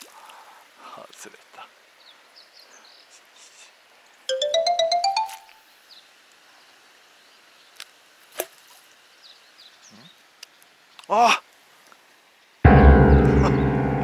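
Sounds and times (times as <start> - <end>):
electronic chime rising notes: 4.3 - 5.6.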